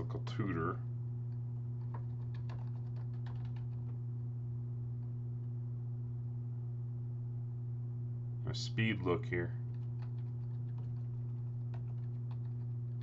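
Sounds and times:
steady low hum: 0:00.0 - 0:13.0
computer keyboard typing: 0:01.8 - 0:04.0, 0:09.7 - 0:13.0.

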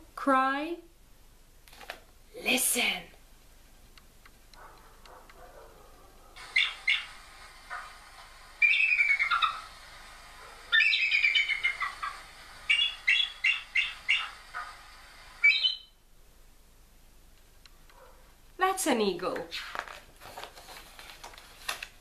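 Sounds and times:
eagle calling: 0:06.4 - 0:09.8, 0:10.7 - 0:16.0.

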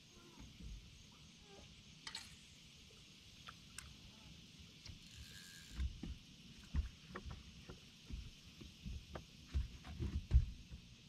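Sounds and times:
high insect drone: 0:00.0 - 0:11.0
dull low thumps on boat deck: 0:05.8 - 0:11.0.

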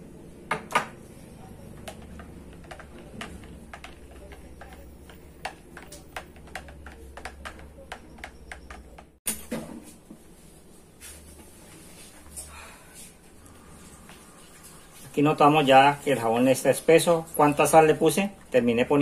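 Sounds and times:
utensil stirring in plastic pitcher: 0:01.7 - 0:09.2.

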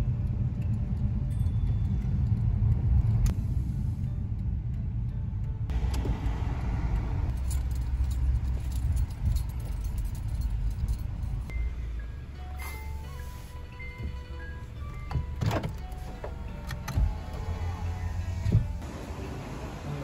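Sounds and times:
car driving rumble: 0:00.0 - 0:20.0
metallic jingling and ticking: 0:00.2 - 0:03.2, 0:07.3 - 0:12.4.

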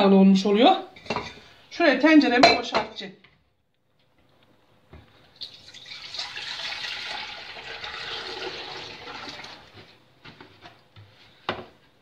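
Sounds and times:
milk pouring into metal pot: 0:05.3 - 0:09.8.

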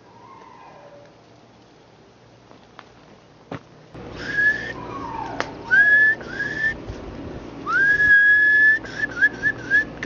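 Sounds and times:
person whistling: 0:04.2 - 0:04.8, 0:05.7 - 0:06.8, 0:07.7 - 0:10.0
warbling whistled trill: 0:04.2 - 0:06.8, 0:07.6 - 0:10.0.

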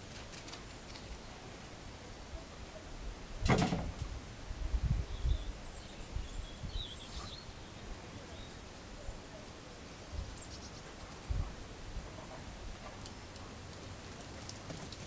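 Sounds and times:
faint bird chirps: 0:04.9 - 0:11.4.

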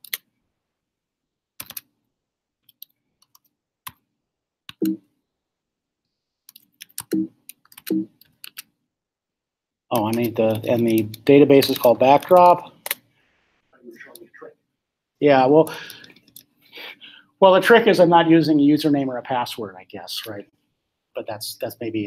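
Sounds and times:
typing on a computer keyboard: 0:01.6 - 0:01.9, 0:06.5 - 0:08.7.

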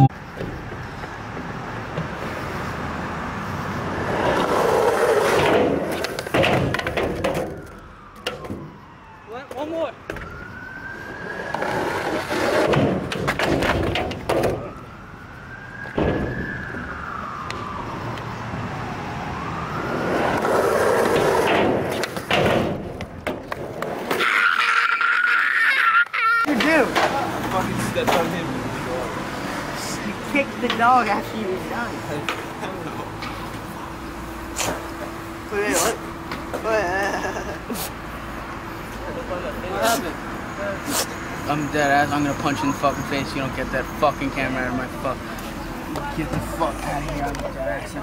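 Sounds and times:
skateboard wheels rolling: 0:03.8 - 0:08.5, 0:11.0 - 0:14.8, 0:19.8 - 0:28.3
skateboard clacking: 0:04.4 - 0:08.4, 0:20.4 - 0:24.3
siren wailing: 0:07.4 - 0:12.6, 0:14.1 - 0:21.5.

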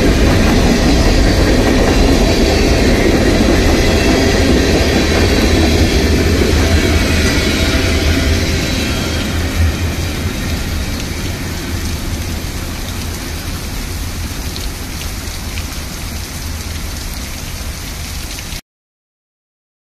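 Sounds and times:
low rumble: 0:00.0 - 0:16.6
heavy rain pouring: 0:00.0 - 0:18.6.

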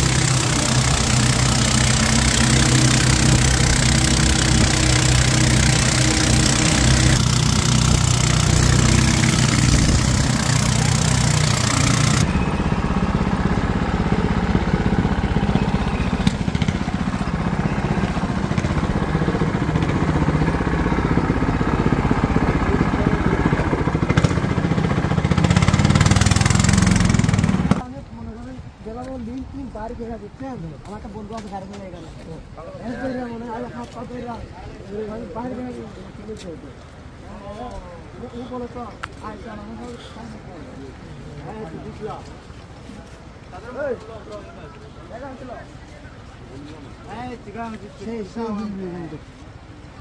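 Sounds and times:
boat motor humming: 0:00.0 - 0:27.9.

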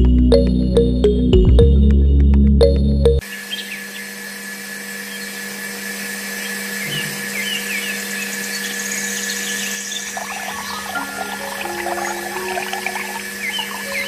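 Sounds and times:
water pump whine: 0:04.1 - 0:14.0.

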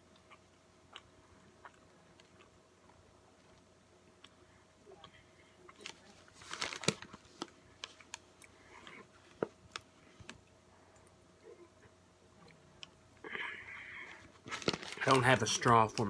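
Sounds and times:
person chewing: 0:00.0 - 0:05.8
paper wrapper crinkling: 0:05.8 - 0:08.2, 0:14.3 - 0:16.0.

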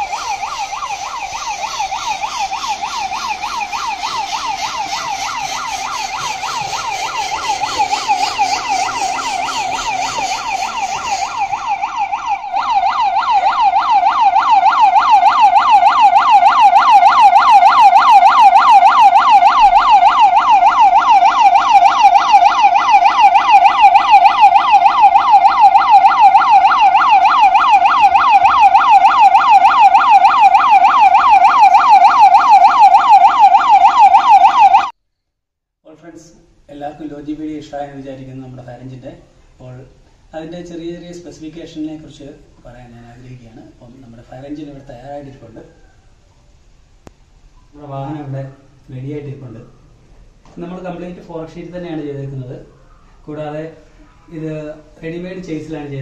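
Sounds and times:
electronic siren yelping: 0:00.0 - 0:35.0.

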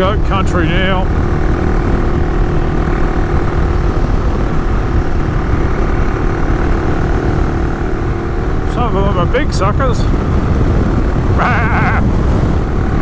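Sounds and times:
motorcycle engine running: 0:00.0 - 0:13.0
rushing riding noise: 0:00.0 - 0:13.0.

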